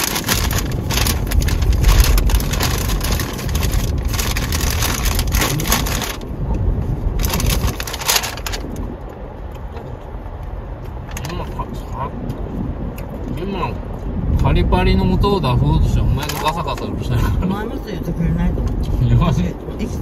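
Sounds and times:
tyres crunching over gravel: 0.0s - 6.4s, 7.1s - 8.9s
car rolling rumble: 0.0s - 20.0s.

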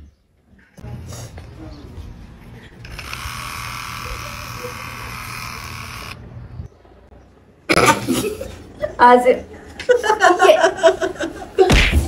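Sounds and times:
electric hair clipper buzzing: 2.9s - 6.2s.

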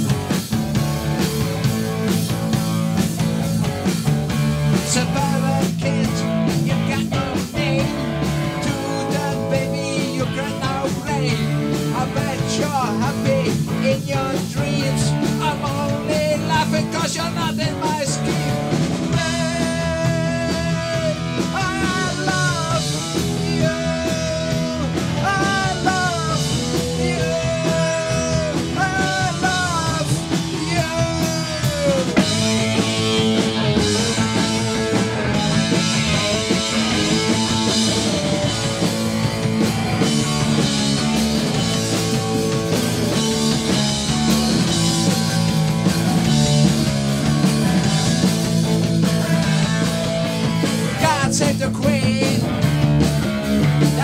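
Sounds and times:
punk rock band playing: 0.0s - 54.0s
man singing: 4.7s - 39.2s, 49.1s - 52.7s, 53.8s - 54.0s.

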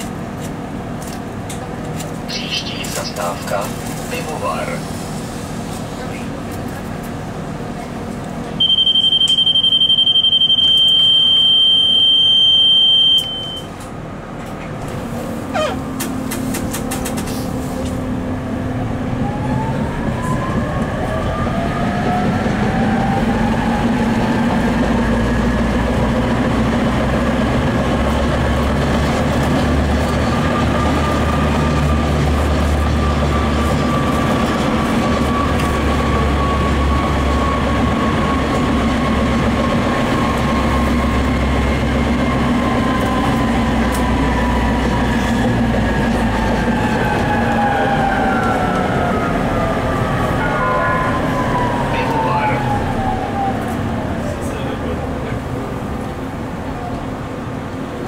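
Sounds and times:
wheels rumbling on rails: 0.0s - 9.3s, 13.2s - 58.0s
electronic warning beep: 8.6s - 13.7s.

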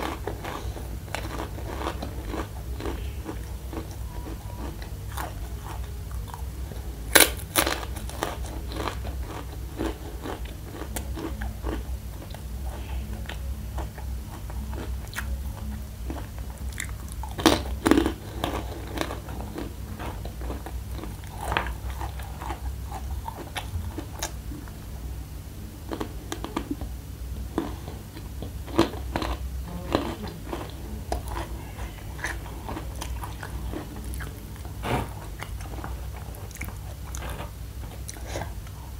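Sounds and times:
crunching and chewing: 0.0s - 24.8s, 25.8s - 26.9s, 27.5s - 38.9s.

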